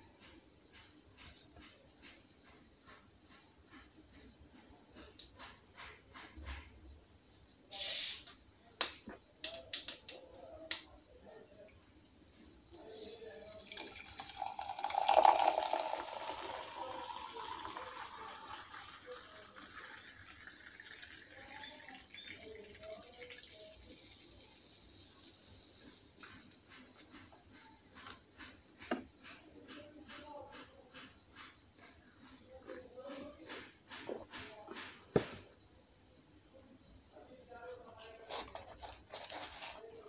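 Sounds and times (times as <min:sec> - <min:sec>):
bottle opening hiss: 0:07.7 - 0:08.4, 0:12.7 - 0:29.4
bubbles fizzing: 0:12.7 - 0:29.9
drink pouring into glass: 0:12.7 - 0:30.0.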